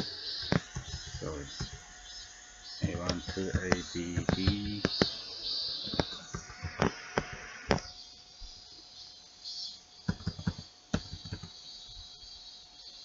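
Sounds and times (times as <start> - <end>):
faint steady hiss: 0.0 - 13.0
keyboard key clicks: 10.1 - 11.5.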